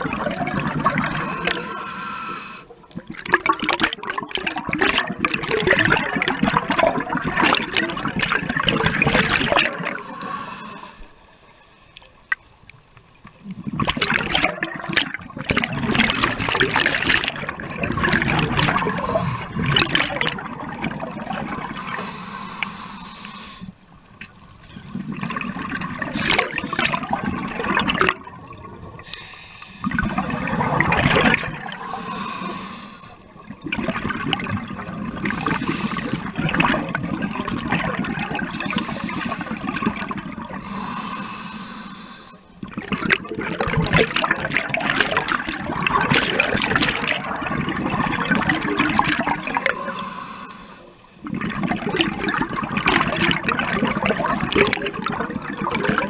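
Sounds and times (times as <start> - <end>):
exhale bubbles underwater: 0.0 - 11.2, 13.2 - 56.0
regulator hiss on inhale: 1.1 - 2.8, 9.9 - 12.0, 18.8 - 19.6, 21.8 - 24.0, 29.0 - 30.8, 31.7 - 33.4, 35.2 - 36.4, 38.7 - 39.8, 40.6 - 42.6, 49.4 - 51.2.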